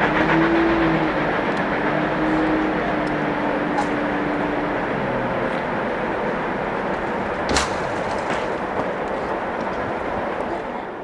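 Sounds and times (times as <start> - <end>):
train wheels rushing on rail: 0.0 - 11.0
sharp rail clack: 6.9 - 9.4.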